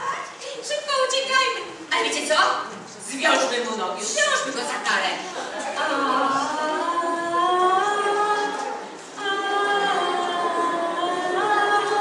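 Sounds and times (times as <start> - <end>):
voices singing together: 5.4 - 12.0.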